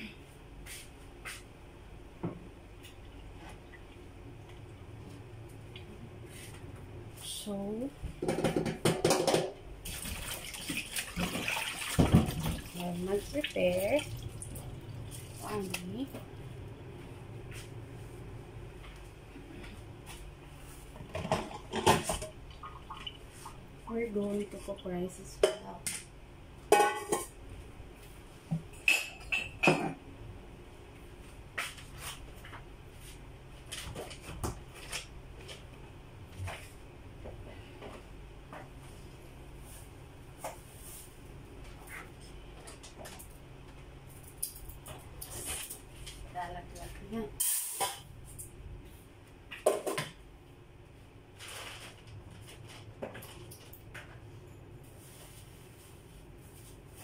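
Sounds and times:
pot clattering on counter: 8.2s - 9.6s, 26.7s - 27.3s
metal pot and kitchenware clattering: 26.7s - 27.4s.

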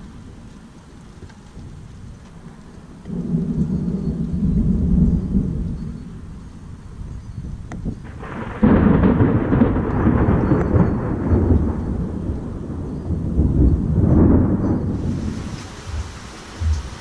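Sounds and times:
thunder rumbling: 1.6s - 17.0s.

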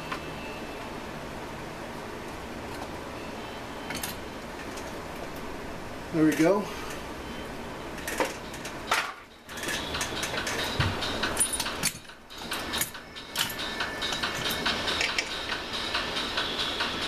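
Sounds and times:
steady hiss: 10.6s - 17.0s.

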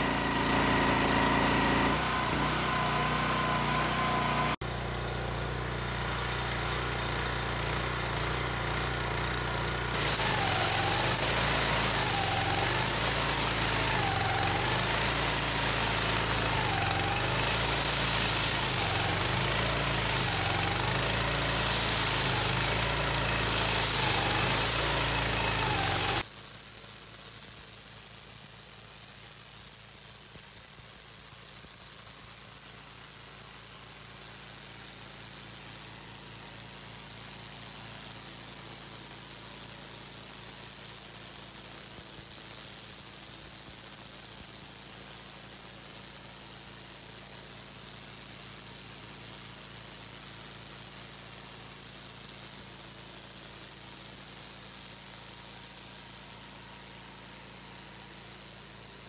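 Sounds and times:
petrol engine droning: 0.0s - 4.6s
water jet hissing on concrete: 0.0s - 59.0s.

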